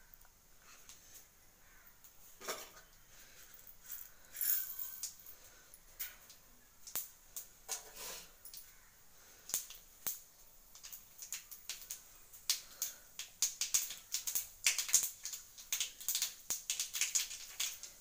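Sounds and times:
mustard seeds popping in hot oil: 0:04.1 - 0:05.2, 0:06.0 - 0:18.0.

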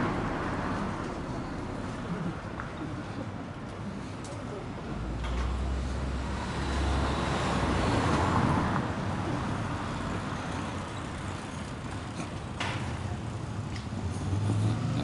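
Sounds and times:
street traffic hum: 0:00.0 - 0:15.0.

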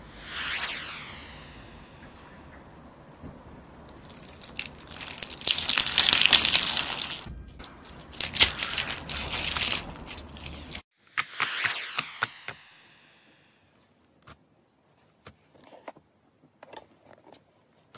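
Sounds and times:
slime beads crunching and clicking: 0:03.9 - 0:10.8.

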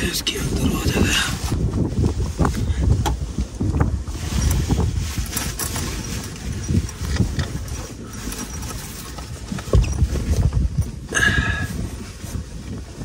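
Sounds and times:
wind buffeting vehicle: 0:00.0 - 0:13.0.

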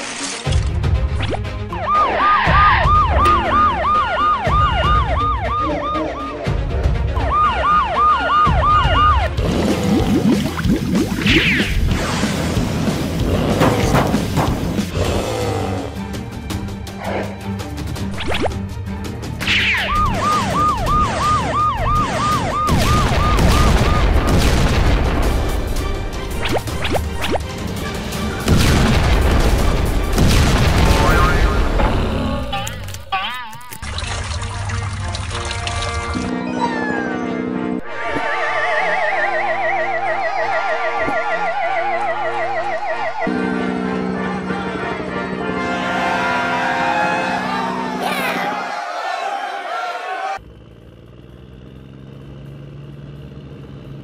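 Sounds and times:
music: 0:00.0 - 0:41.4, 0:42.1 - 0:48.0
toy siren yelping: 0:01.7 - 0:06.6, 0:07.2 - 0:09.4, 0:19.6 - 0:24.2, 0:36.4 - 0:43.3.

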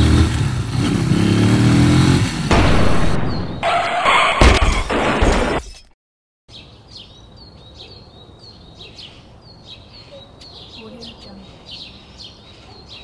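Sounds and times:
sharp bang: 0:02.5 - 0:05.6
loud crashing clatter: 0:02.5 - 0:05.9
small bird chirping: 0:06.5 - 0:13.0.

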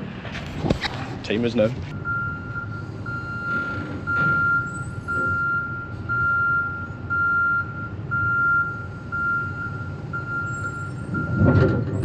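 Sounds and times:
diesel engine rumble: 0:00.0 - 0:12.0
reversing warning beeps: 0:01.9 - 0:12.0
heavy clunk: 0:03.3 - 0:05.5, 0:11.1 - 0:12.0.

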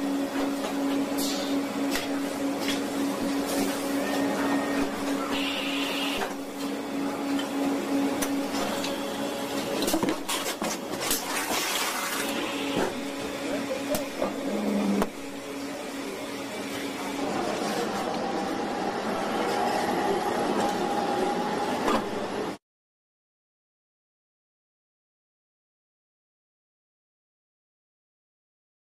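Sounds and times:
factory machinery humming: 0:00.0 - 0:22.6.

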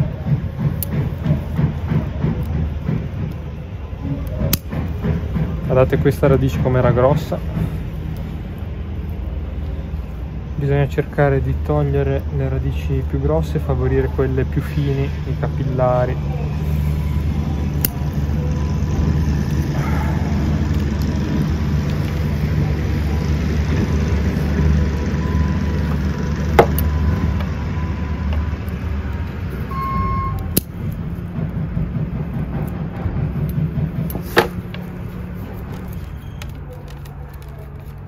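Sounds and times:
engine rumble: 0:00.0 - 0:38.0
shears and tools clicking: 0:28.2 - 0:31.6, 0:32.3 - 0:38.0.

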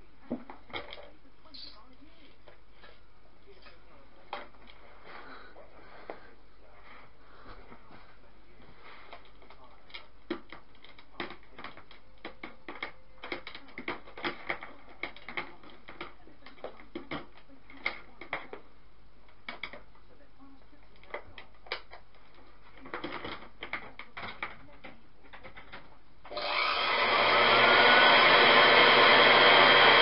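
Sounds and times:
clicks and knocks of handling: 0:09.1 - 0:18.6, 0:19.3 - 0:20.0, 0:20.9 - 0:26.0.

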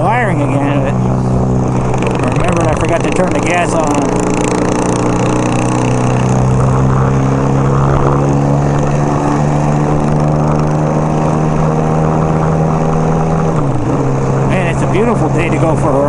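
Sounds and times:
wind rushing: 0:00.0 - 0:10.2
motorcycle engine cruising: 0:00.0 - 0:16.0.

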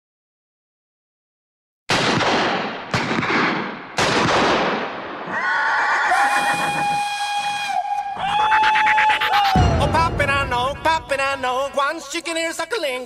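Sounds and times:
loud ringing bangs: 0:09.6 - 0:11.8.

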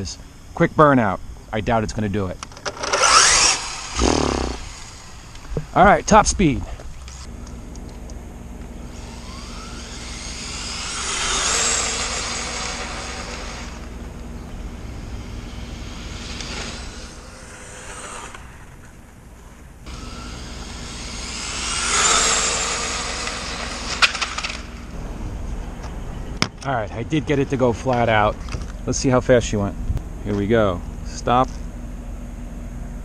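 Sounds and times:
rc car motor whine: 0:02.4 - 0:25.0.

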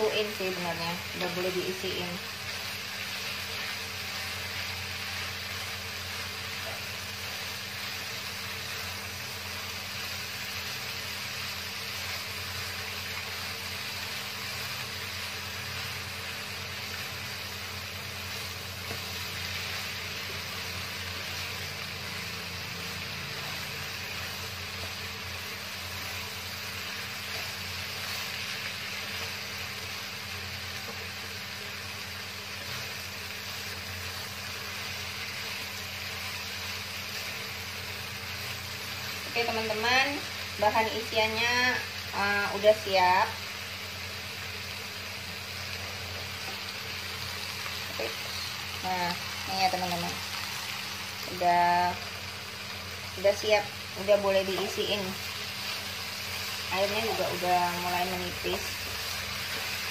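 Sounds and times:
vegetables sizzling in a wok: 0:00.0 - 0:59.9.

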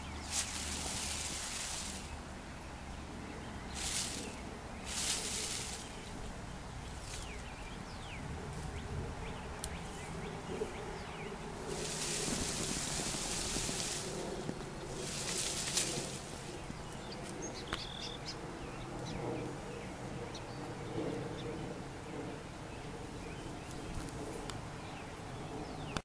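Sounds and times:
leaves rustling: 0:00.0 - 0:18.2.

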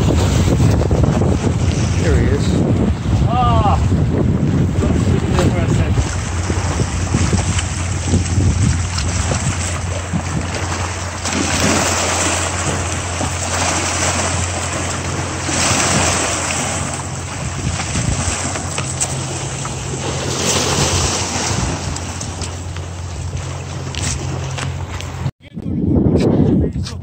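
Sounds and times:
surf breaking over rocks: 0:00.0 - 0:24.8
steady low hum: 0:00.0 - 0:25.3
fish splashing in water: 0:06.1 - 0:24.9.

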